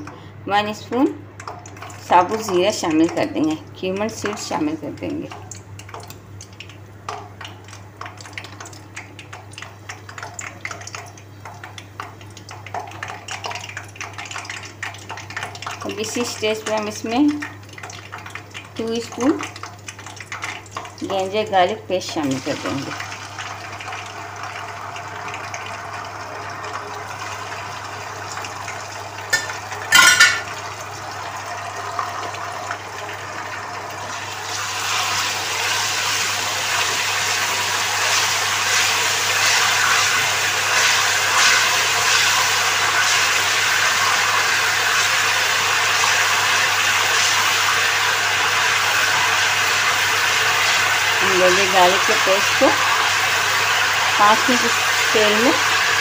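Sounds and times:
paste sizzling in hot oil: 34.1s - 56.0s.

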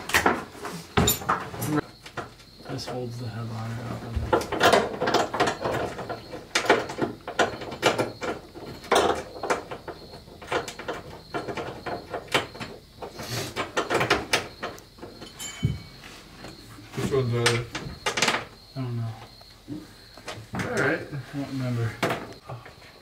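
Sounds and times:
hand tools clicking and knocking: 4.0s - 16.6s.

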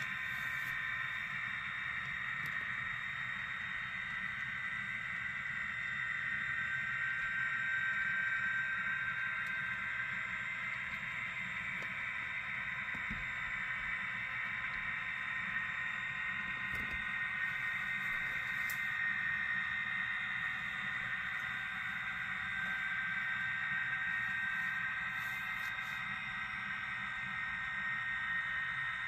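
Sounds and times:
model train motor whirring: 16.7s - 26.8s.

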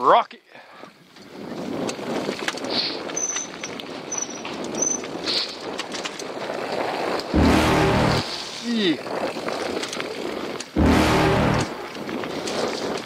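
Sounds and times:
bike rattling: 0.9s - 13.0s
rushing noise: 7.3s - 9.0s, 10.8s - 12.3s
tyres crunching over gravel: 8.2s - 10.8s, 11.7s - 13.0s.

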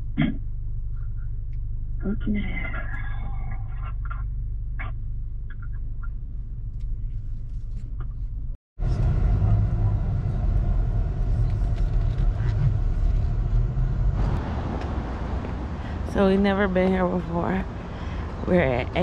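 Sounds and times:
car driving rumble: 0.0s - 19.0s
car idling rumble: 0.0s - 19.0s.

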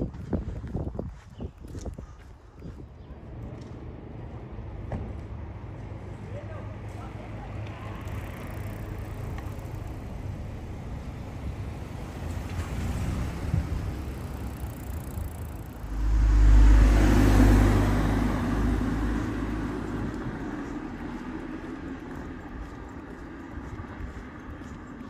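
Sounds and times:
street noise: 0.0s - 25.0s
vehicle driving past: 7.4s - 22.6s.

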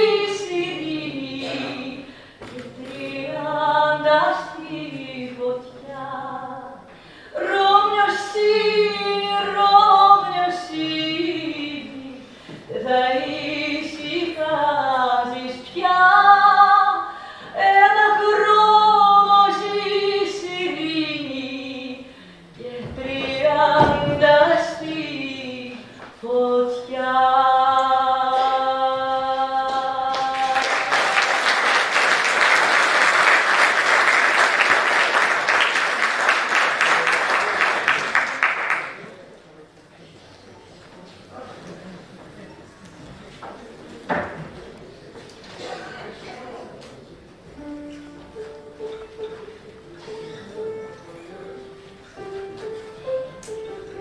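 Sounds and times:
woman singing: 0.0s - 31.3s
audience applauding: 30.1s - 39.2s.

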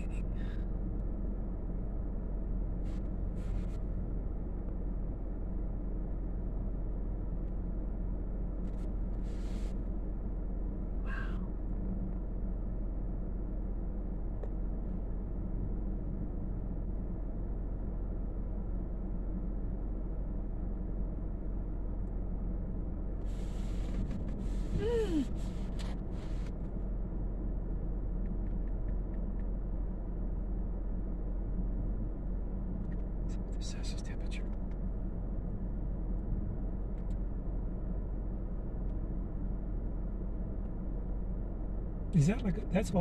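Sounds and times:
low rumble and hum: 0.0s - 43.0s
faint clicks: 28.2s - 29.5s.

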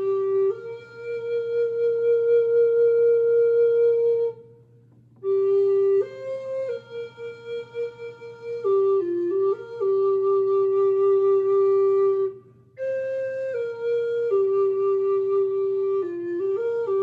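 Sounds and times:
flute playing slow melody: 0.0s - 17.0s.

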